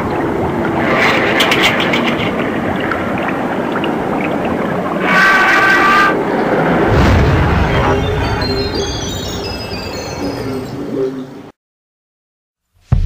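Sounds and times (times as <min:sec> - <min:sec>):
noisy ambient wash: 0:00.0 - 0:11.6
low rumble: 0:06.1 - 0:10.7.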